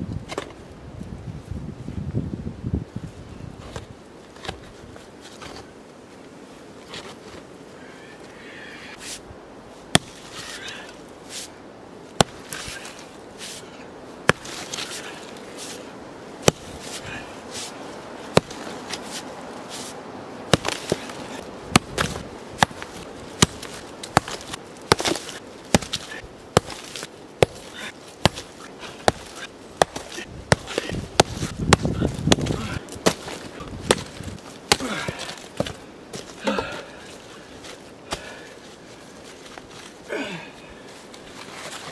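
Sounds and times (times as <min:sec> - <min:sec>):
sledgehammer striking rock: 0:09.9 - 0:10.2, 0:12.2 - 0:12.7, 0:14.2 - 0:14.9, 0:16.4 - 0:16.7, 0:18.3 - 0:18.7, 0:20.5 - 0:35.8
stone crunching: 0:09.9 - 0:11.0, 0:12.2 - 0:38.4.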